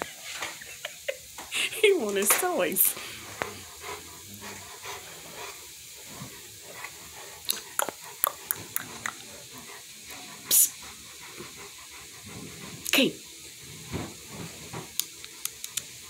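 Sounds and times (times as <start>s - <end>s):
dog hissing snort: 1.5s - 14.9s
dog moving about: 13.6s - 15.0s.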